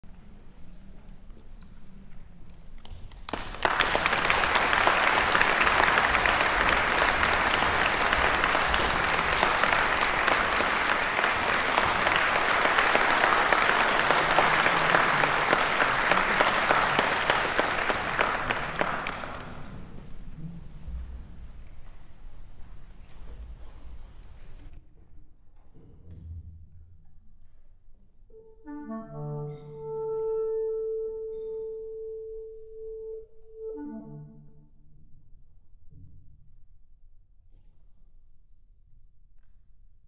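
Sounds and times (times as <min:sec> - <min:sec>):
audience applauding: 0:03.1 - 0:20.2.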